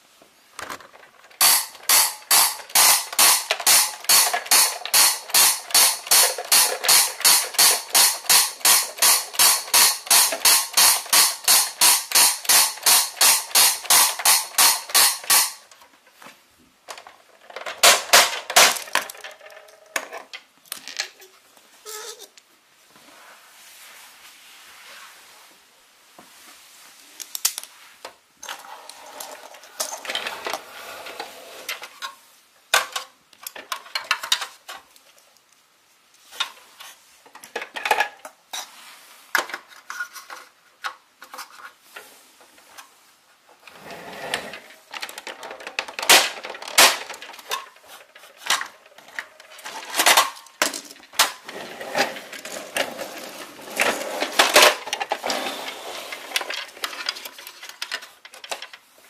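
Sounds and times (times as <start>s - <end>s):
hard objects clattering: 0.6s - 16.2s, 43.7s - 58.9s.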